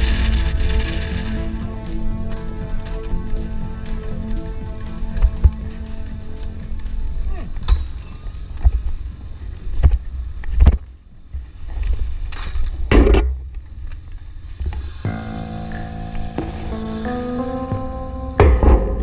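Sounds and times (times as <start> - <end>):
metallic impact on gate: 18.4 - 19.0.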